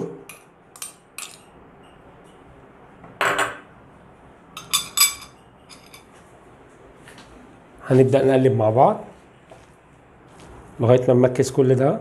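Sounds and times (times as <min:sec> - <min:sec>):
dish clinking: 0:04.6 - 0:06.1.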